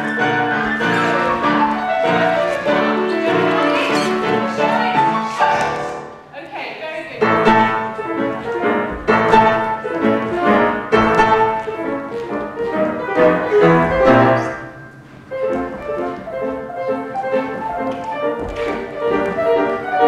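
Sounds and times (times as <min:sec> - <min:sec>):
strings: 0:00.0 - 0:06.2
classical piano music: 0:00.0 - 0:06.4, 0:07.2 - 0:20.0.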